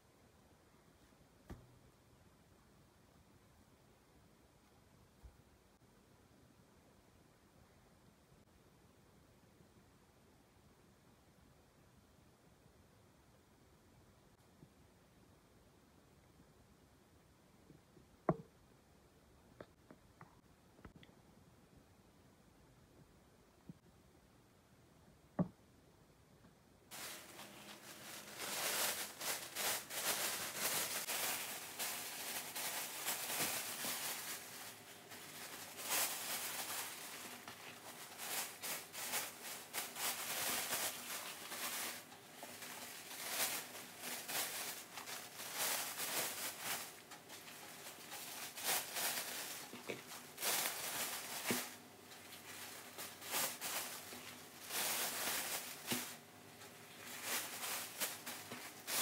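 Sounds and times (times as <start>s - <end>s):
plastic bags rustling and crinkling: 26.9s - 59.0s.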